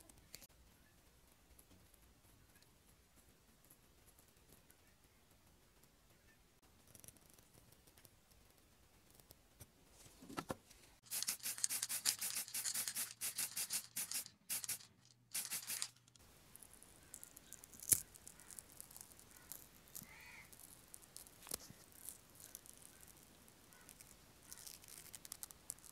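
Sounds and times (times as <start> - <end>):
rapid rubbing strokes: 11.0 - 16.1.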